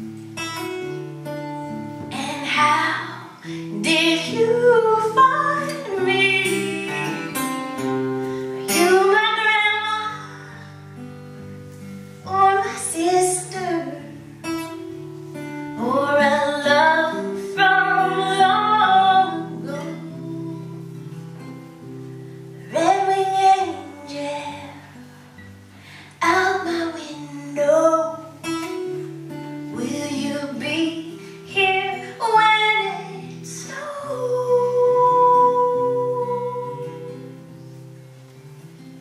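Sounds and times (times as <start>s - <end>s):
acoustic guitar chords: 0.0s - 39.0s
woman singing a folk song: 0.3s - 38.0s.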